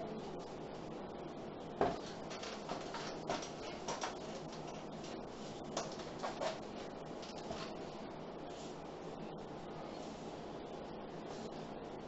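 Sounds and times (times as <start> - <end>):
room hiss: 0.0 - 12.0
marker writing on whiteboard: 2.0 - 7.8.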